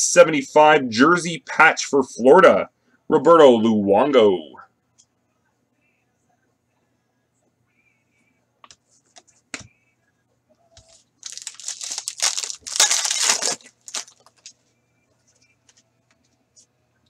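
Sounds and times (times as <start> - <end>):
card pack wrapper tearing: 11.2 - 14.5.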